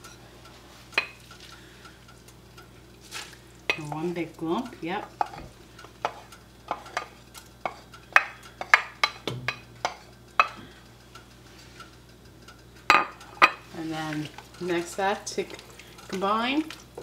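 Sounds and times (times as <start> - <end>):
wooden spoon tapping a bowl: 6.0 - 10.6.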